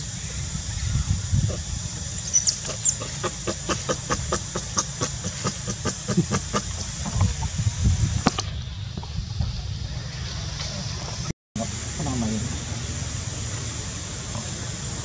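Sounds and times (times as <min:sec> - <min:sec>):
steady hiss: 0:00.0 - 0:15.0
baby monkey squeaks: 0:02.2 - 0:03.0.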